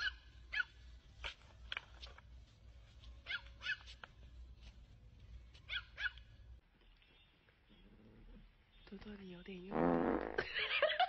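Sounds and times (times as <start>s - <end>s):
small dog yapping: 0.0s - 0.8s, 3.2s - 4.0s, 5.7s - 6.3s.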